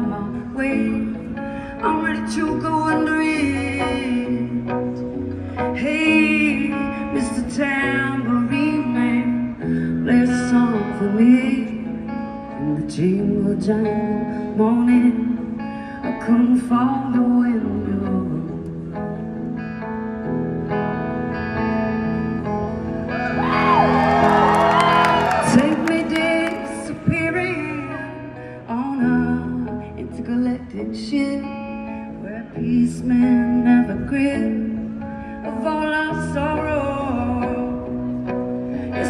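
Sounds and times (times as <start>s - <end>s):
woman singing: 0.0s - 19.0s, 24.3s - 38.2s.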